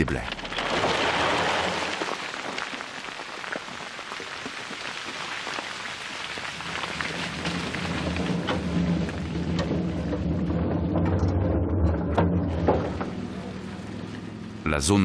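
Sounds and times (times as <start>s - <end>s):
rock rattling down rubble heap: 0.0s - 14.0s
low rumble: 7.1s - 15.0s.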